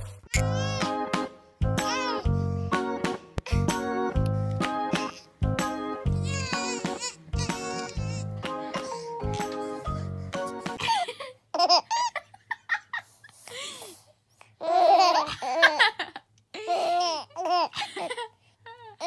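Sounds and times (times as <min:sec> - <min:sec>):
baby babbling and laughing: 0:00.0 - 0:01.0, 0:01.8 - 0:02.3, 0:06.1 - 0:09.8, 0:14.6 - 0:15.8, 0:16.6 - 0:19.0.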